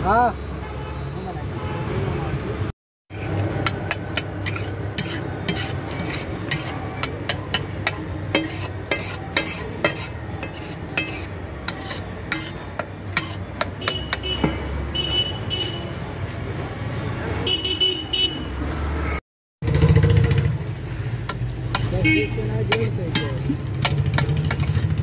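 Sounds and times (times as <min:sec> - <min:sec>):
metal spatula scraping griddle: 0:03.1 - 0:14.1.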